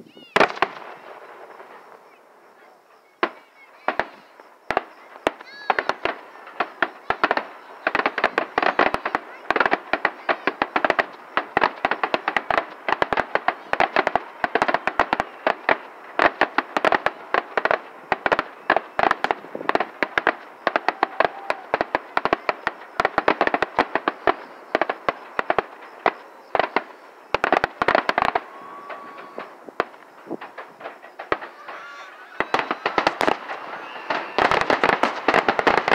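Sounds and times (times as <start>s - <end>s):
fireworks bangs and crackles: 0.0s - 35.9s.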